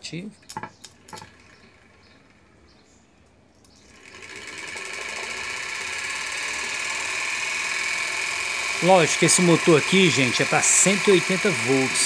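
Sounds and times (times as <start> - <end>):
electric motor whirring: 3.8 - 12.0.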